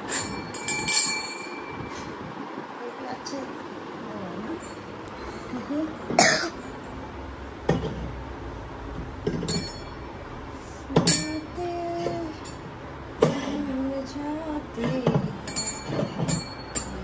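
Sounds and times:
metal goblets clinking on shelf: 0:00.0 - 0:01.8, 0:09.3 - 0:10.0, 0:15.4 - 0:17.0.

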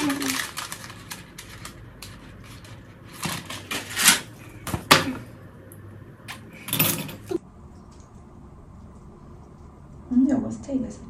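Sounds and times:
paper card rustling: 0:00.0 - 0:04.2.

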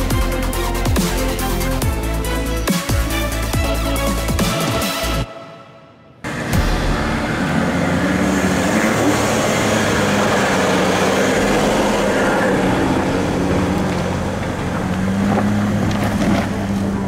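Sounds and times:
car engine running at low speed: 0:06.3 - 0:17.0.

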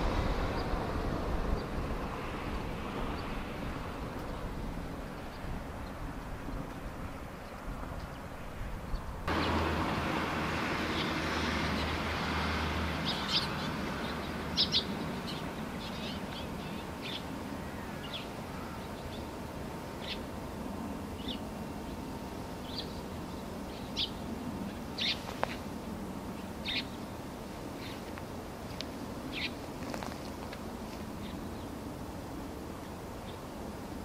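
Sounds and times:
low hum: 0:00.0 - 0:34.0
songbirds chirping: 0:00.0 - 0:34.0
steady outdoor hiss: 0:00.0 - 0:34.0.

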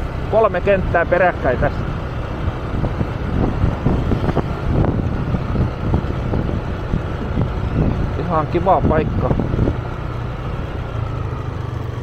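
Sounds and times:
scooter engine running: 0:00.0 - 0:12.0
wind rumble on microphone: 0:01.6 - 0:11.1.

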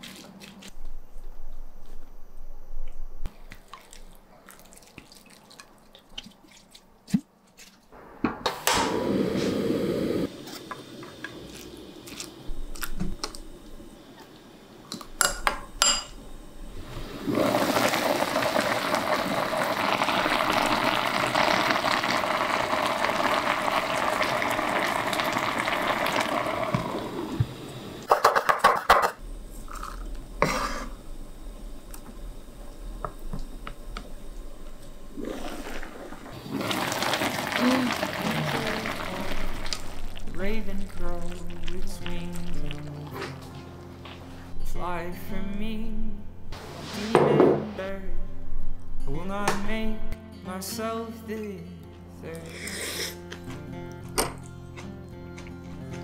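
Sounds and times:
liquid pouring into pot: 0:17.2 - 0:27.2, 0:35.1 - 0:42.8.

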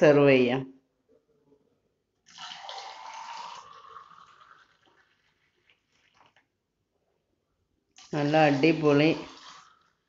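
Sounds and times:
juice pouring into a glass: 0:02.3 - 0:06.6, 0:08.0 - 0:10.0.

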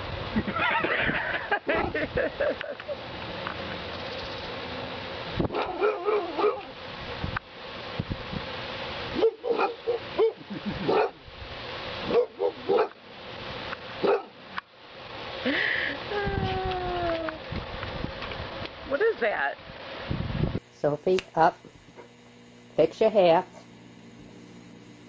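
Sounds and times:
dogs barking: 0:05.5 - 0:06.7, 0:09.1 - 0:11.2, 0:12.1 - 0:13.0, 0:14.0 - 0:14.4.

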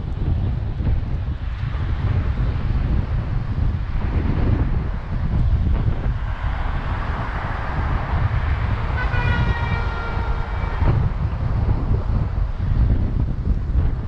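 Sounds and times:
wind buffeting microphone: 0:00.0 - 0:14.0
vehicle horn: 0:08.7 - 0:11.2.

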